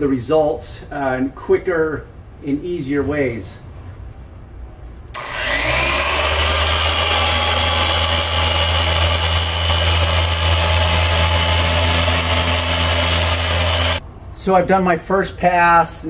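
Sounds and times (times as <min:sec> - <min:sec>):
electric power sander: 0:05.2 - 0:14.0.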